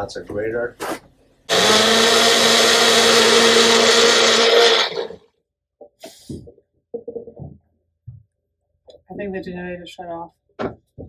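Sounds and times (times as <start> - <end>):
electric blender running: 1.5 - 5.2.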